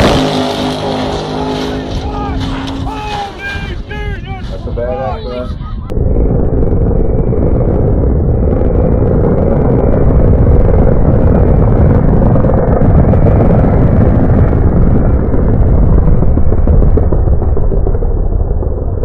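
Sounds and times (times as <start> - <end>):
drag-racing cars at full throttle: 0.0 - 4.9.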